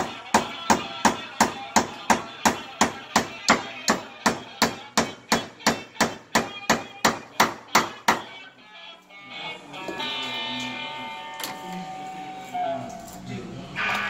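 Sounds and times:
hand-hammer blows ringing: 0.0s - 8.3s.

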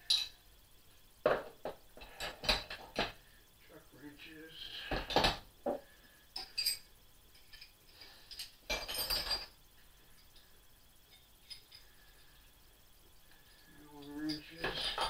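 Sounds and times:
tools clattering: 6.4s - 9.6s, 14.0s - 15.0s
metal hand tools clinking: 14.0s - 15.0s.

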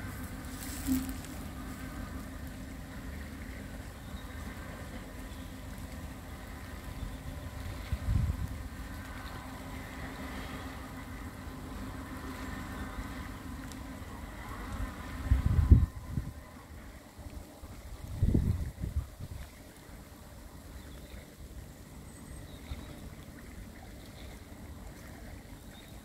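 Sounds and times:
ship engines droning: 0.0s - 18.1s, 19.6s - 26.0s
wind buffeting microphone: 6.5s - 8.8s, 14.6s - 17.0s, 17.6s - 19.7s.

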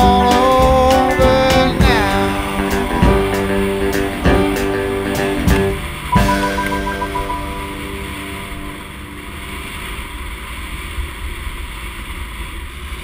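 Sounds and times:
guitar song: 0.0s - 9.8s.

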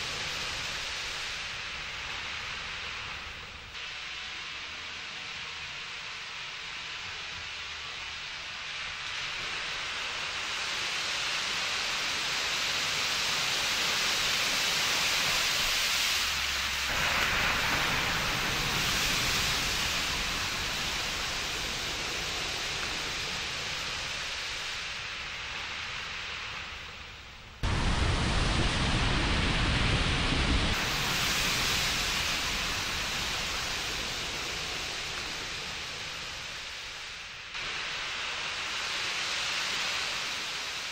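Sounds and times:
water spray from tyres: 9.2s - 27.0s, 27.6s - 40.9s.

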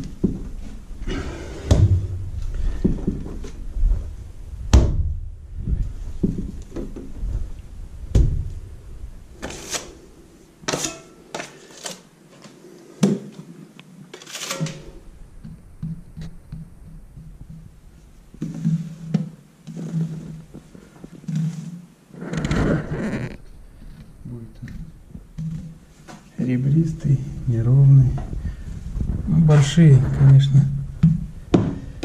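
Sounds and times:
loud thunks: 1.6s - 2.3s, 4.7s - 5.2s, 8.1s - 8.5s
spatula scraping plaster: 18.4s - 21.8s.

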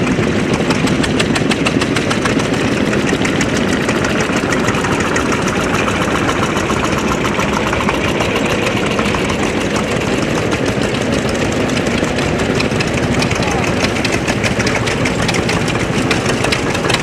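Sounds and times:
tractor diesel engines: 0.0s - 17.0s.

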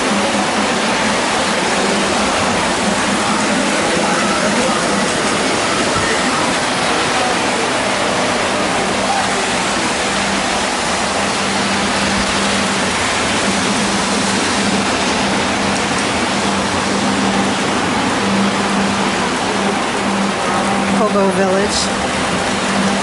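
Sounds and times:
model trains rumbling: 0.0s - 23.0s.

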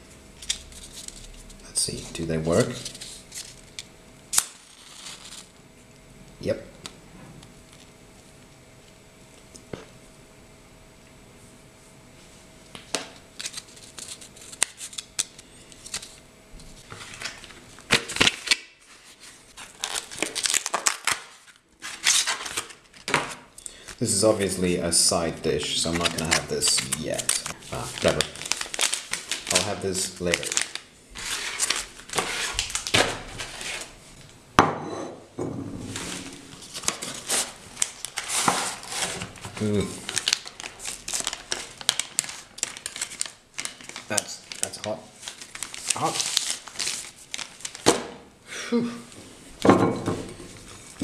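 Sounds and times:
foil and cardboard crinkling: 0.4s - 5.5s, 13.4s - 23.4s, 25.7s - 33.9s, 35.9s - 48.0s.

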